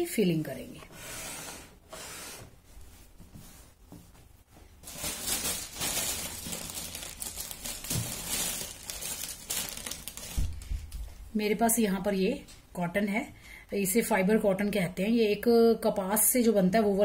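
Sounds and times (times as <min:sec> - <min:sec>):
stuffing crinkling and rustling: 0:02.5 - 0:11.2.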